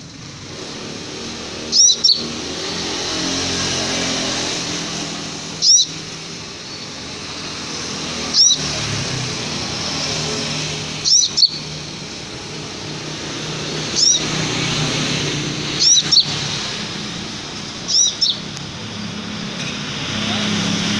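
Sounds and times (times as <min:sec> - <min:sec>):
bird chirping high-pitched: 0:01.2 - 0:09.0, 0:09.8 - 0:18.6.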